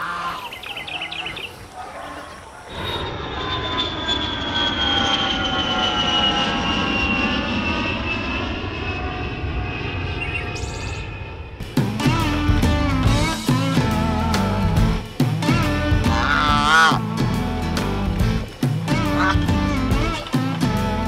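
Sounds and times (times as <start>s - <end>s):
airplane engine whine: 0.0s - 21.0s
bird chirps: 0.2s - 1.7s, 10.1s - 11.2s.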